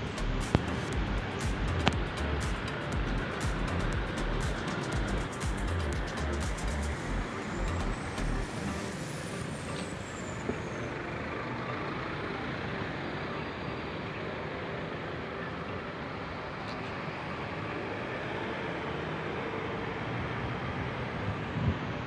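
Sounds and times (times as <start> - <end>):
music with heavy bass beat: 0.0 - 9.0.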